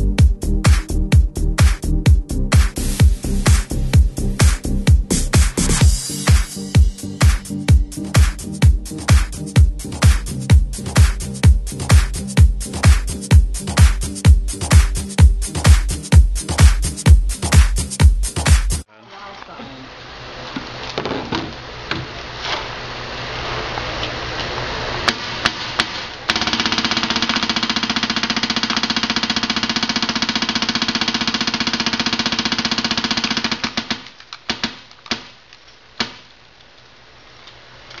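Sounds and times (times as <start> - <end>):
paintball marker firing: 25.1 - 35.4, 36.0 - 36.3.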